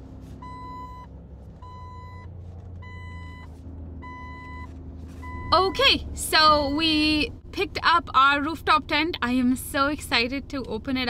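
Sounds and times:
low engine rumble: 0.0 - 11.0
reversing alarm beeping: 0.4 - 5.8.

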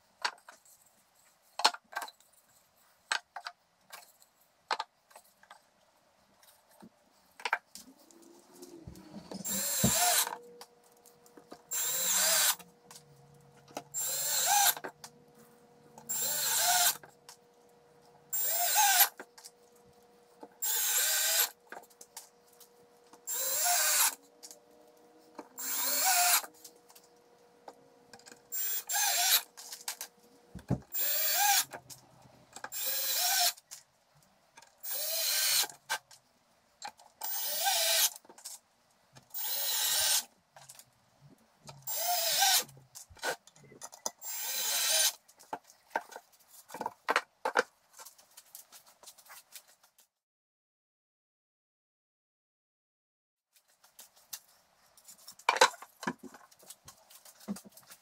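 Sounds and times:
cordless drill driving screws: 9.4 - 10.4, 11.7 - 12.7, 13.9 - 14.8, 16.1 - 17.0, 18.4 - 19.2, 20.6 - 21.6, 23.3 - 24.2, 25.6 - 26.5, 28.5 - 29.5, 30.9 - 31.7, 32.7 - 33.6, 34.8 - 35.7, 37.2 - 38.1, 39.4 - 40.3, 41.9 - 42.7, 44.2 - 45.2.

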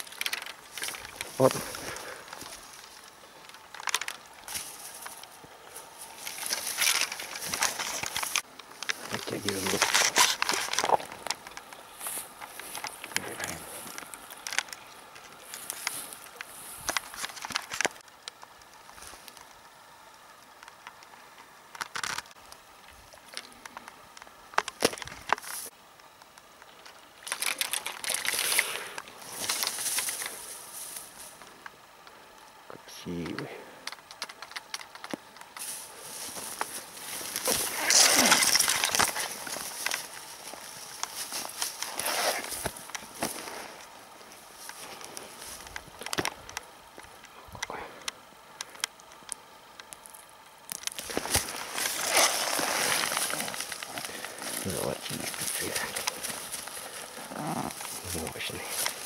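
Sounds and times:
dry grass rustling and crackling: 0.0 - 47.7, 48.4 - 59.0.

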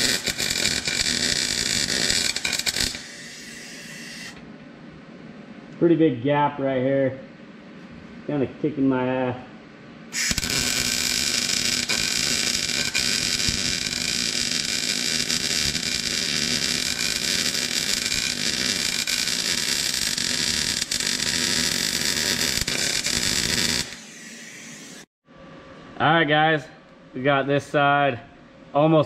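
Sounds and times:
welding arc crackling: 0.0 - 4.4, 10.2 - 25.1.

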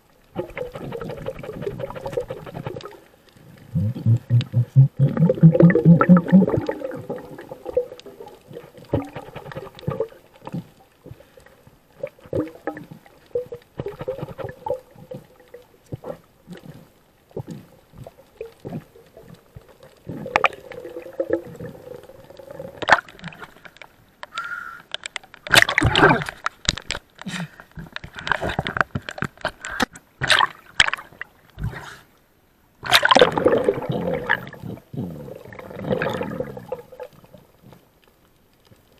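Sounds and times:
gurgling sloshing water: 0.0 - 24.0, 32.8 - 38.0
underwater bubbling rushes: 0.3 - 23.7, 32.8 - 37.6
short clicks and crackles: 6.1 - 31.0.

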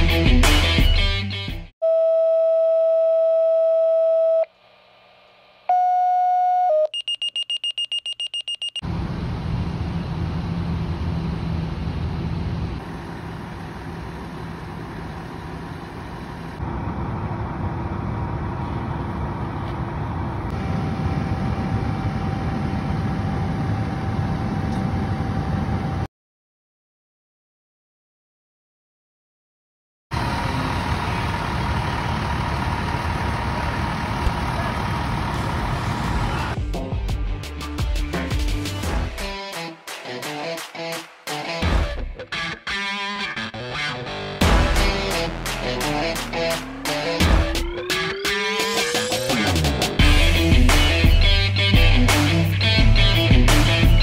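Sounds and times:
fire engine running: 8.8 - 26.1, 30.1 - 36.6, 44.1 - 54.0.

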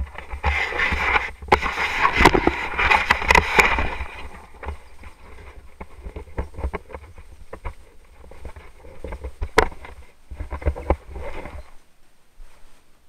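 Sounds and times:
sail rustling and flapping: 0.0 - 11.8.

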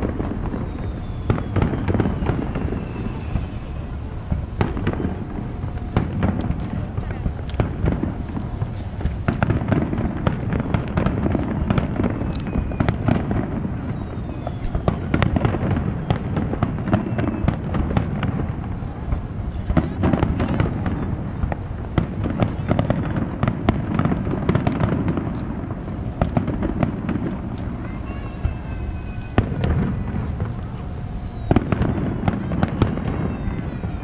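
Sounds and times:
fireworks bangs and crackles: 0.0 - 34.0.

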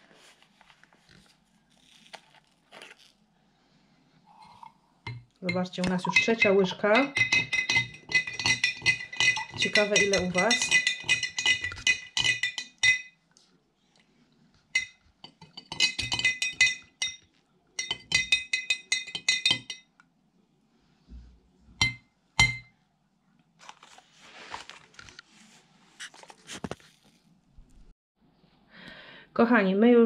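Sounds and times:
spoon scraping in plastic bag: 0.0 - 3.2
metal spoon clinking on glass jar: 4.4 - 13.2, 14.8 - 19.9, 21.8 - 22.7
spoon tapping jar: 4.6 - 13.2, 14.8 - 17.2, 17.8 - 19.9, 21.8 - 22.7.

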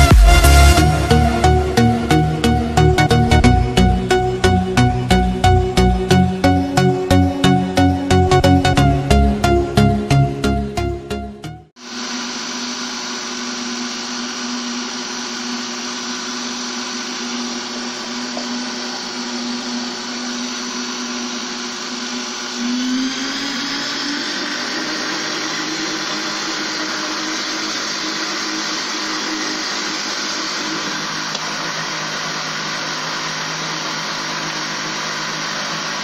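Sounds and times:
blender running: 11.8 - 36.0.

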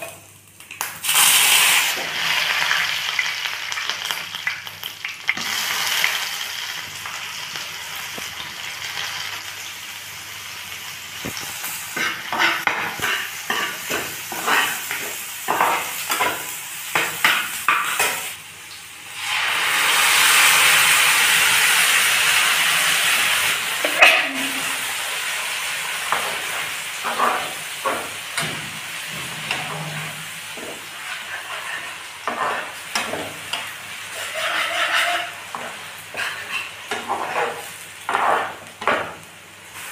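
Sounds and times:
onions frying in hot oil: 0.0 - 39.9
loud burst of sizzling: 0.8 - 39.9
spatula scraping and tapping pan: 12.0 - 18.3, 26.1 - 39.2.

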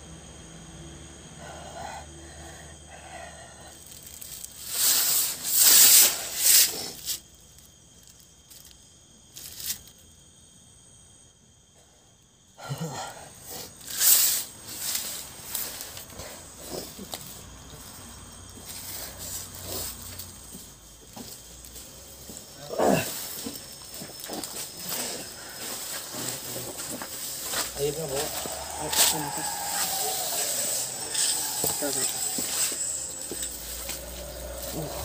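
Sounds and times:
person hissing and breathing hard: 1.3 - 7.2, 12.6 - 17.2, 18.6 - 35.0.

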